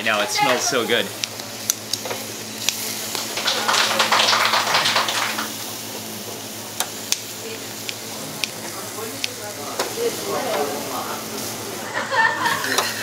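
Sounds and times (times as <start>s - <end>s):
meat sizzling on a grill: 0.0s - 13.0s
tongs clicking on metal grate: 12.5s - 13.0s.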